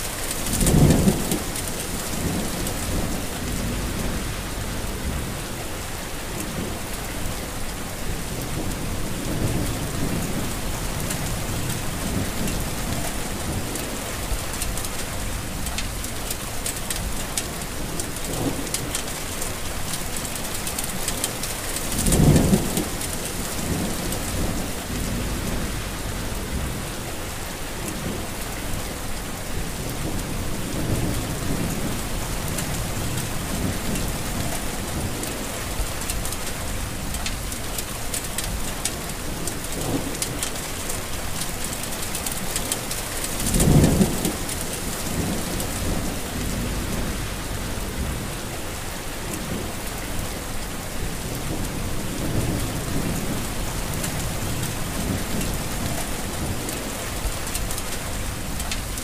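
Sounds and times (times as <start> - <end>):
heavy rain falling: 0.0 - 59.0
low rumble: 3.0 - 5.6, 45.2 - 48.4.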